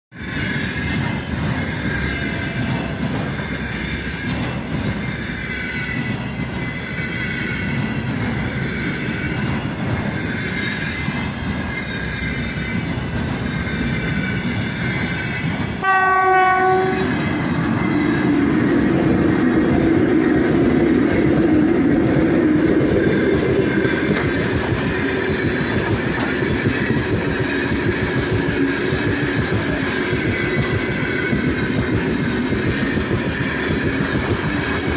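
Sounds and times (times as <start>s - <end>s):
train wheels rumbling and clattering: 0.2s - 34.9s
locomotive horn blast: 15.8s - 17.3s.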